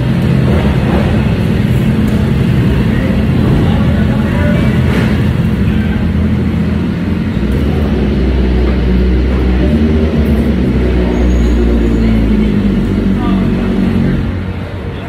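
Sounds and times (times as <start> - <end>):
engines low rumble: 0.0 - 15.0.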